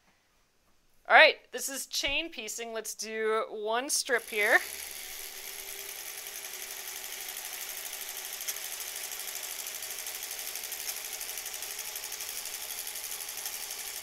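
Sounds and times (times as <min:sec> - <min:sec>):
sewing machine stitching: 0:04.1 - 0:14.0.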